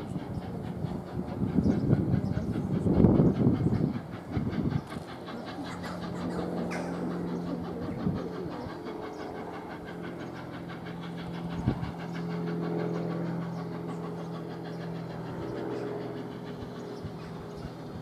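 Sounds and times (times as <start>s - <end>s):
steam locomotive exhaust beats: 0.0s - 18.0s.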